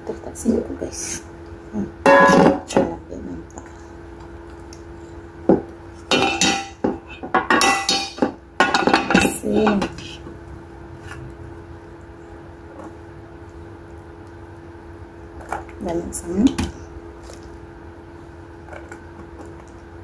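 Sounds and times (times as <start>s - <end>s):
bowl and spoons clinking: 2.1s - 2.6s.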